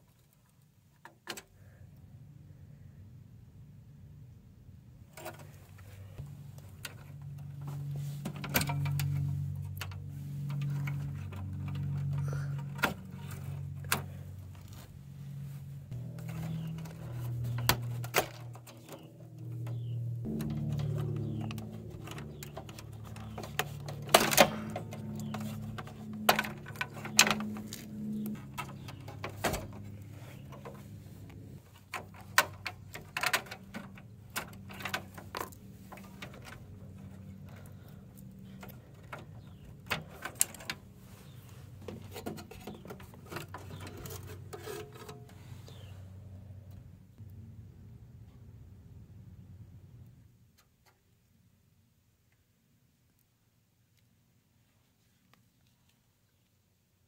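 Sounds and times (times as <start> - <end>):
steady low hum: 1.8 - 50.5
plastic and metal clicks and knocks: 16.0 - 30.8, 31.8 - 37.6.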